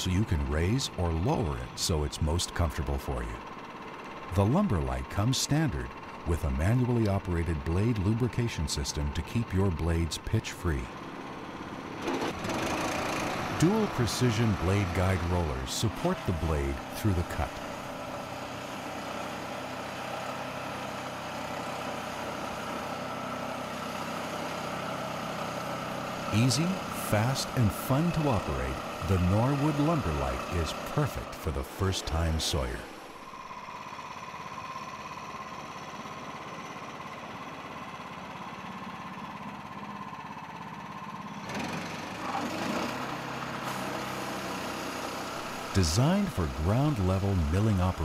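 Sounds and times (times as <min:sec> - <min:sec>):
sawmill engine running: 0:00.0 - 0:48.0
band saw blade cutting log: 0:12.0 - 0:19.3, 0:26.0 - 0:33.3, 0:41.4 - 0:48.0.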